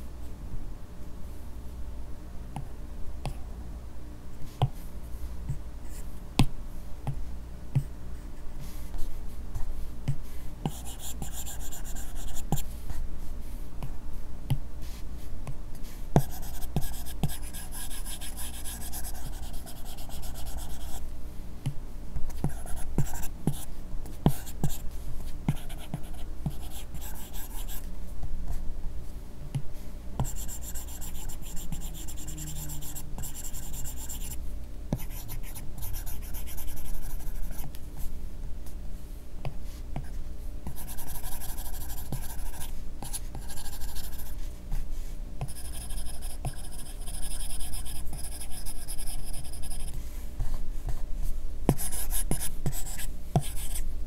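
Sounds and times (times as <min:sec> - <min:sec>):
stylus scratching on screen: 0:30.2 - 0:34.4.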